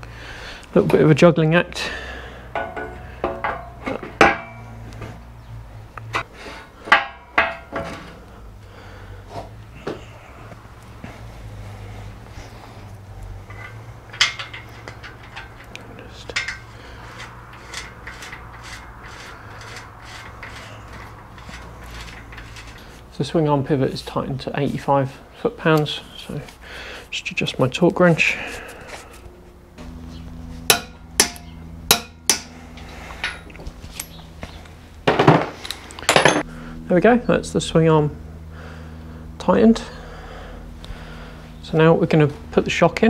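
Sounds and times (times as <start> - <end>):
metal tools clinking: 13.5 - 23.0, 30.8 - 36.5
wrench rasping: 13.5 - 23.1.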